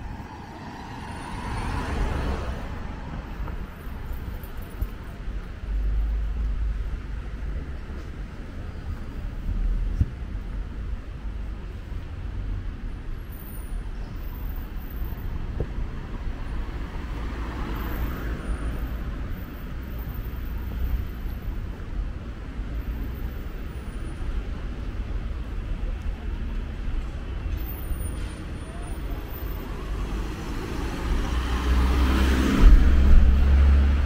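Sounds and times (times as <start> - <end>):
hum of traffic: 0.0 - 34.0
vehicle passing: 29.6 - 34.0.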